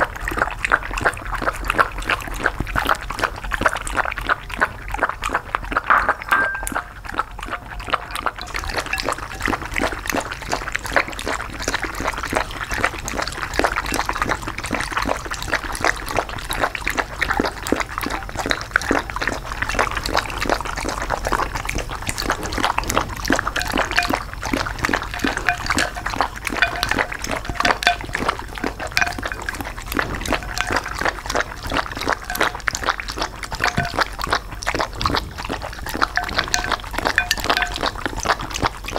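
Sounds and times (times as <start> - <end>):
dogs lapping liquid: 0.0 - 38.9.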